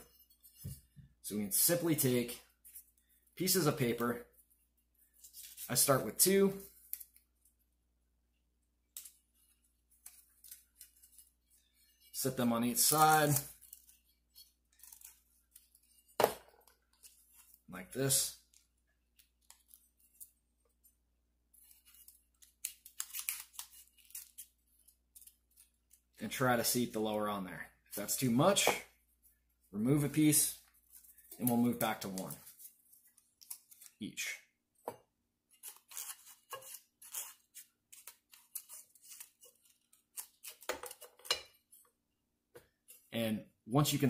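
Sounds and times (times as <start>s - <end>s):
paper strips rustling: 8.9s - 16.2s, 21.5s - 26.2s, 30.6s - 34.0s
paper crinkling and rustling: 30.7s - 34.0s.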